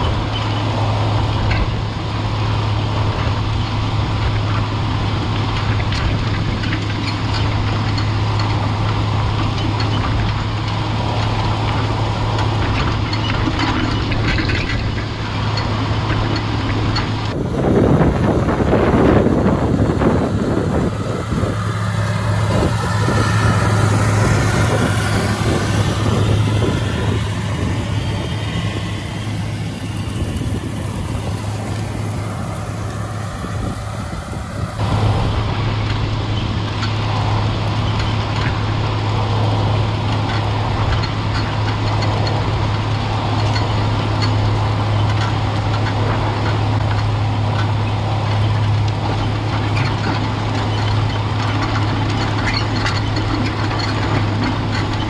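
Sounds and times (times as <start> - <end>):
tractor diesel engine droning: 0.0 - 55.0
wind on microphone: 11.2 - 47.2.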